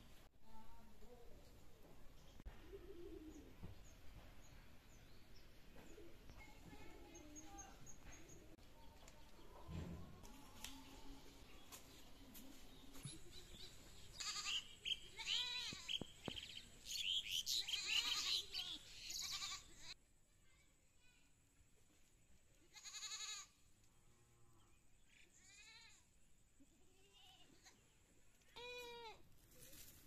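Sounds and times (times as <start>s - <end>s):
faint background noise: 0.0s - 30.0s
goat bleating: 14.2s - 16.0s, 17.5s - 20.0s, 22.7s - 23.6s, 25.3s - 26.0s, 28.6s - 29.2s.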